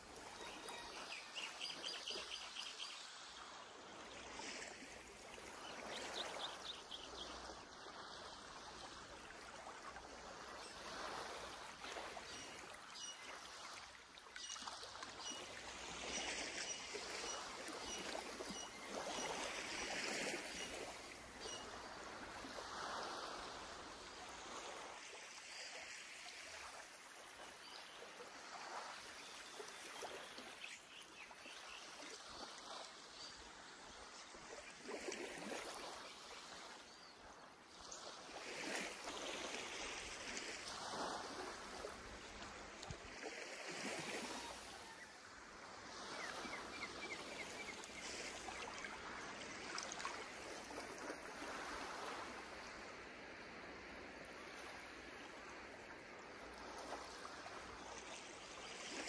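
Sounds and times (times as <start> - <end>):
sea waves washing onto beach: 0.0 - 59.0.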